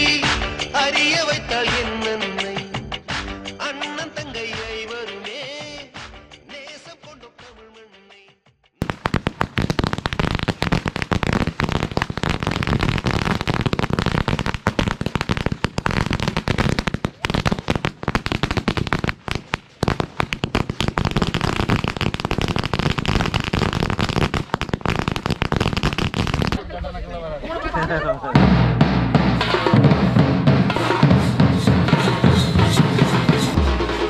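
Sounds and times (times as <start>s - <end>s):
firecrackers banging: 8.8s - 26.7s.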